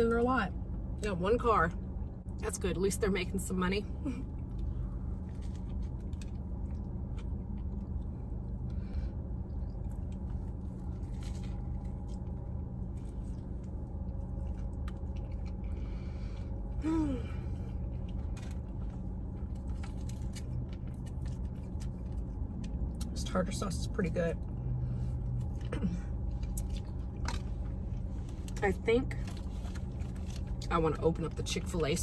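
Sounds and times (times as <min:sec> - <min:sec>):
low hum: 0:00.0 - 0:32.0
chewing and wet mouth clicks: 0:14.4 - 0:15.8.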